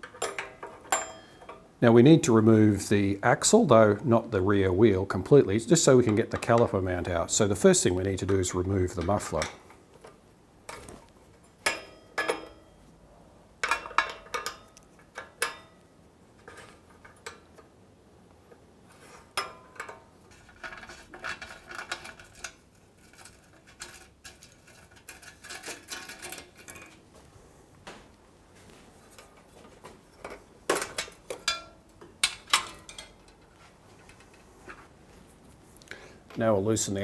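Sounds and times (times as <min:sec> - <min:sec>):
metal tools clinking: 0:00.0 - 0:01.6, 0:30.1 - 0:34.4.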